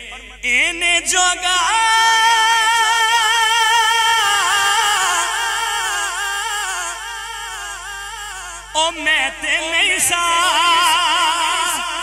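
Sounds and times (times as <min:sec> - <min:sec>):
man singing long note with vibrato: 0:00.0 - 0:12.0.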